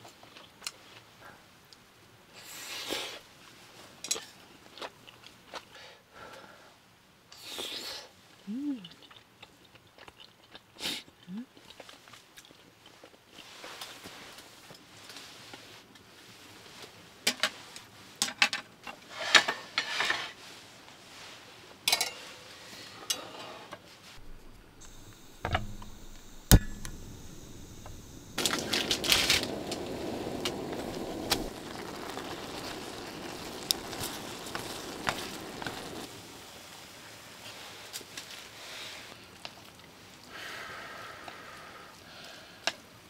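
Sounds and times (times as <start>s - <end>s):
gas stove igniter click: 24.2s - 28.6s
gas burner hissing: 24.2s - 36.8s.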